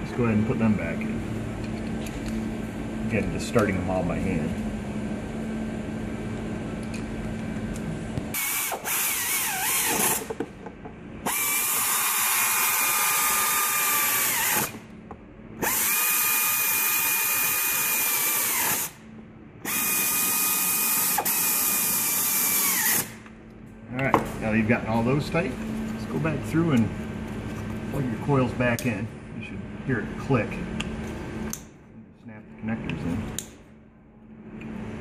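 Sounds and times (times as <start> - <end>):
air ratchet hissing whine: 8.3 - 10.4, 11.2 - 14.8, 15.6 - 19.0, 19.6 - 23.3.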